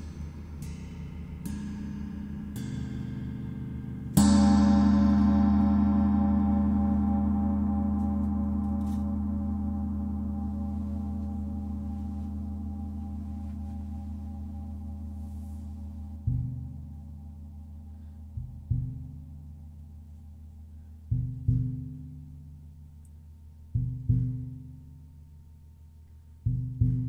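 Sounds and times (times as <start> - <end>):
large gong ringing: 4.2 - 17.0.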